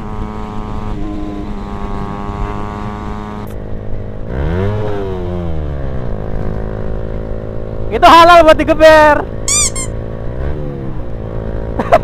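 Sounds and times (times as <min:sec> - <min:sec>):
engine revving: 0:00.0 - 0:03.6, 0:04.3 - 0:06.9
motorcycle engine running: 0:00.0 - 0:12.0.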